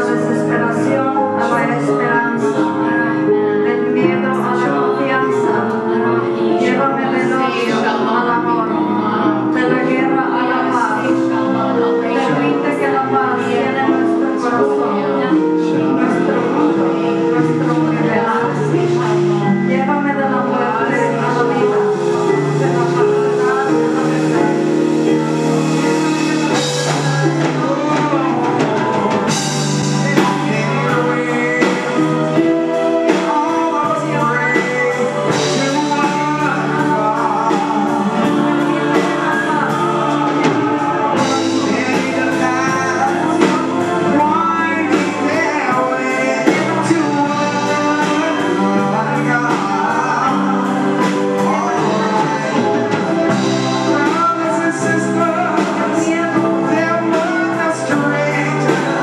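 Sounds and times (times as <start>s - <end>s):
congas: 0.0s - 59.0s
keyboard: 0.0s - 59.0s
several voices singing: 0.0s - 59.0s
steady drum beat: 20.9s - 59.0s.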